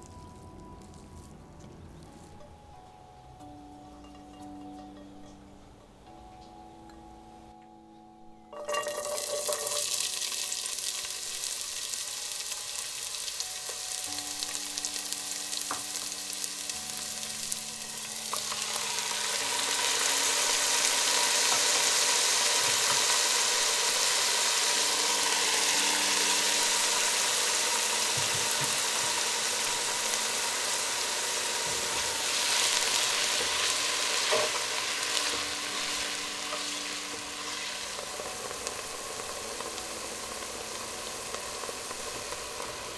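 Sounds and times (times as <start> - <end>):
vegetables sizzling in oil: 8.5 - 42.9
spatula stirring vegetables: 9.1 - 42.9.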